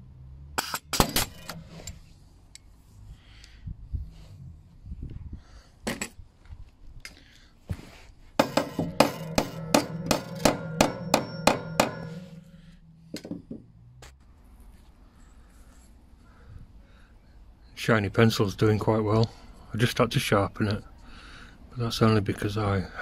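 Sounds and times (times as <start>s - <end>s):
hammer driving nails into metal: 0.6s - 2.0s, 8.4s - 13.5s.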